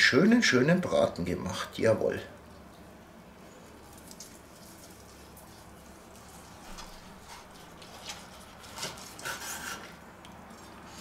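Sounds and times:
knife sawing through meat: 0:06.3 - 0:10.0.

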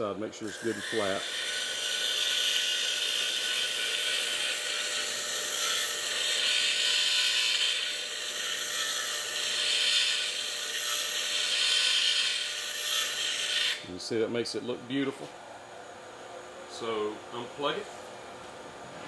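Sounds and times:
faint motor hum: 0:00.0 - 0:19.0
file rasping on spinning shaft: 0:00.4 - 0:13.8.

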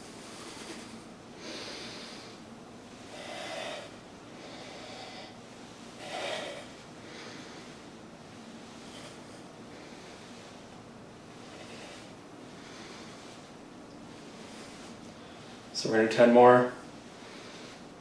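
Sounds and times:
man breathing hard: 0:00.1 - 0:08.0, 0:08.6 - 0:13.6, 0:17.0 - 0:18.0.

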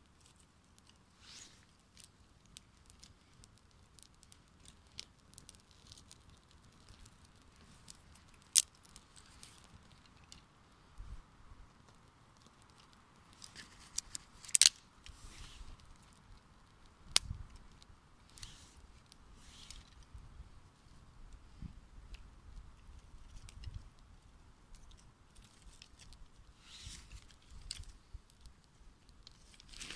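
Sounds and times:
campfire crackling: 0:00.0 - 0:29.9
sharp pops of fire: 0:00.7 - 0:10.8, 0:11.7 - 0:20.4.

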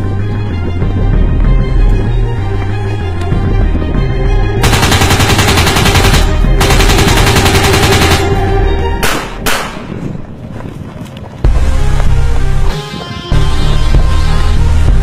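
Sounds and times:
background music: 0:00.0 - 0:10.1, 0:11.4 - 0:15.0
rapid gunfire: 0:04.6 - 0:08.3
single gunshots: 0:09.0 - 0:09.9.

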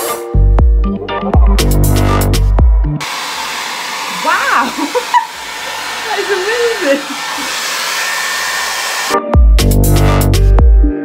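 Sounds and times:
hair dryer blowing air: 0:02.0 - 0:09.3.

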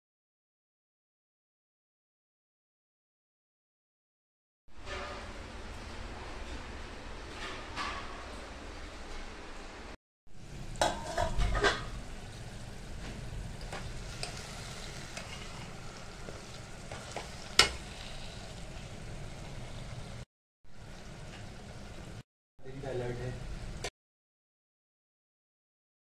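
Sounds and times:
meat sizzling in oil: 0:11.9 - 0:22.2
metal spoon scraping a pot: 0:13.7 - 0:18.6.

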